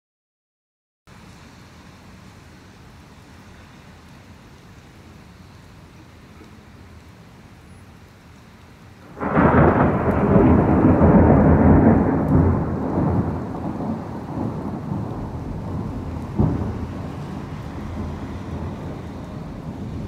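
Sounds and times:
rain hissing: 1.1s - 20.0s
thunder crack and rumble: 9.0s - 20.0s.

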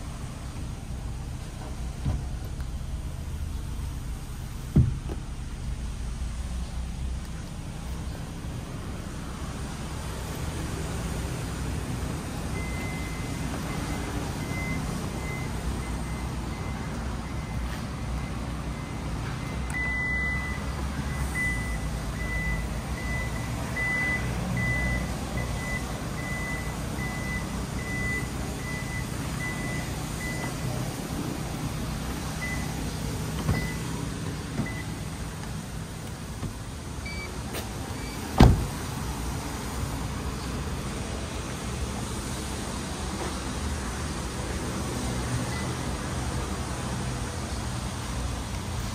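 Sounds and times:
high repeated warning beep: 12.6s - 30.6s, 33.5s - 33.9s.

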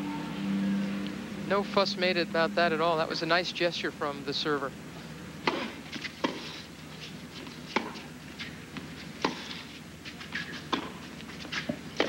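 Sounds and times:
tennis ball struck by rackets: 5.4s - 6.5s, 7.7s - 9.6s, 10.4s - 12.0s.

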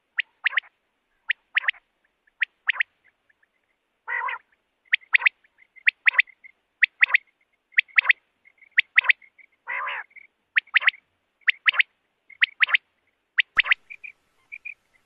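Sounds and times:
quail calling: 0.1s - 12.8s, 13.4s - 15.0s
harsh raspy bird call: 4.1s - 6.4s, 9.0s - 11.8s, 13.5s - 15.0s.

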